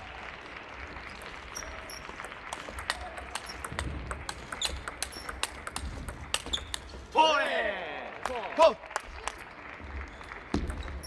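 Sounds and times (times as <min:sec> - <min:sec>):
shoes squeaking on floor: 0:01.5 - 0:02.2, 0:04.5 - 0:05.5, 0:06.3 - 0:07.1
table tennis ball clicking: 0:01.6 - 0:06.9.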